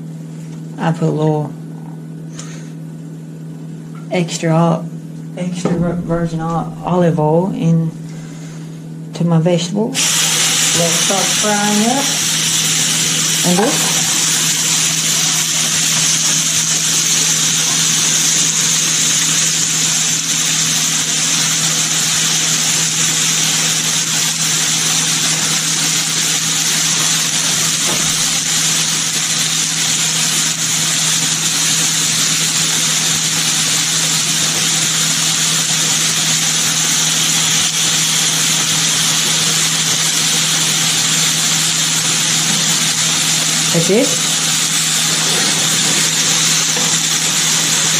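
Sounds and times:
low hum: 0:03.5 - 0:15.7
vegetables sizzling in frying pan: 0:10.0 - 0:47.9.

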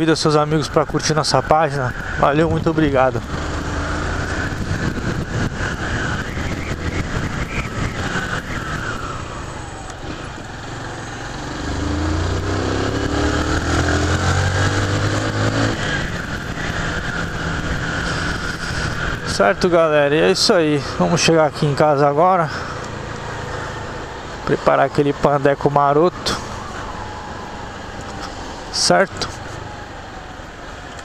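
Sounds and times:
wind rushing over microphone: 0:00.0 - 0:21.9
motorcycle engine running: 0:09.7 - 0:15.6.

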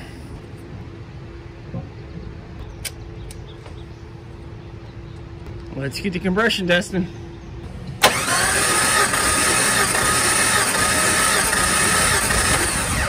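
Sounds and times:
engine cranking on starter: 0:08.0 - 0:13.0.

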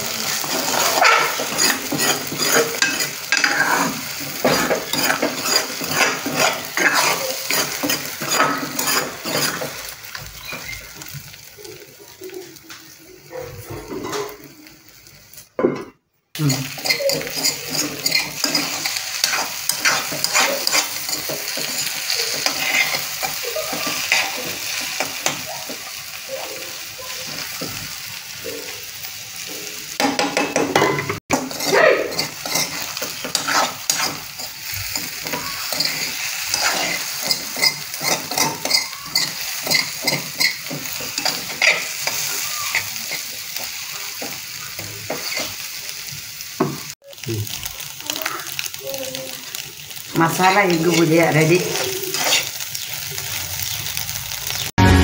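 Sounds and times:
spatula scraping a pan: 0:00.0 - 0:11.1, 0:16.4 - 0:28.8, 0:29.4 - 0:45.8, 0:50.2 - 0:53.4
eggs sizzling in a pan: 0:00.0 - 0:55.0.

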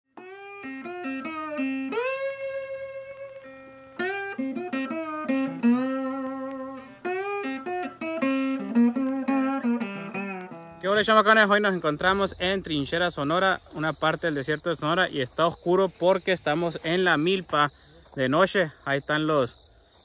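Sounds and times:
solo guitar plucked melody: 0:00.2 - 0:12.6.

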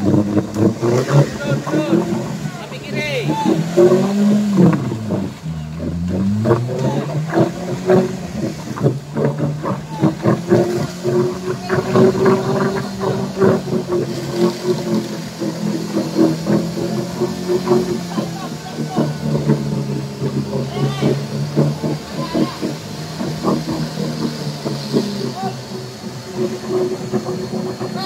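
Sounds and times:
car engine revving in mud: 0:00.0 - 0:28.0
voices: 0:00.0 - 0:28.0.

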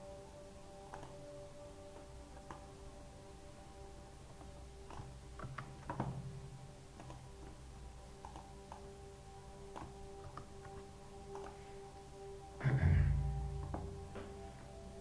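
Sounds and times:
faint hum of held tones: 0:00.0 - 0:15.0
computer mouse clicks: 0:00.9 - 0:01.3, 0:02.3 - 0:02.7, 0:04.3 - 0:06.3, 0:06.9 - 0:07.6, 0:08.2 - 0:09.0, 0:09.7 - 0:11.8.

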